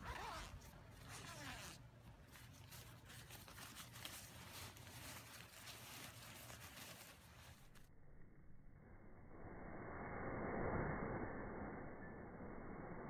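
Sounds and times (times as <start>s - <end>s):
nylon fabric rustling: 0.0s - 7.8s.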